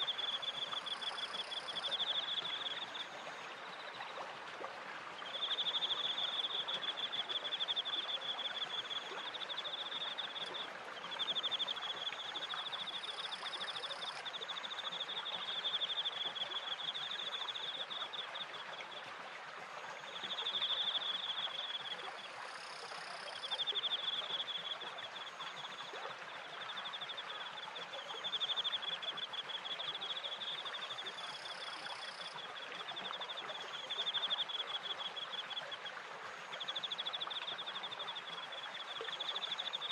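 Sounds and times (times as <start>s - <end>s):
flowing water: 0.0s - 39.9s.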